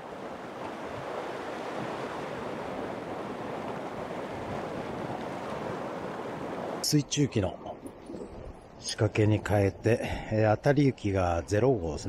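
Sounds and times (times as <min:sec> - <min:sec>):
wind buffeting microphone: 0:00.0 - 0:06.8
surf washing against rocks: 0:00.0 - 0:07.0.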